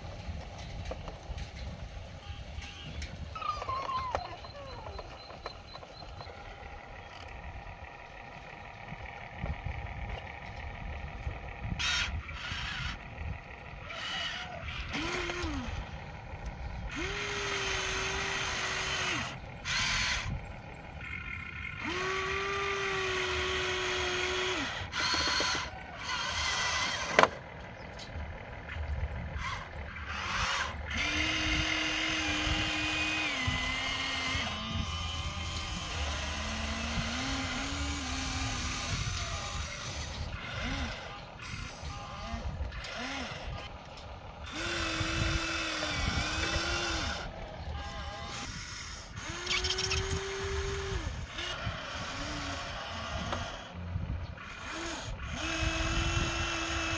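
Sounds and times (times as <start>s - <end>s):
toy excavator motors whining: 0.0s - 56.9s.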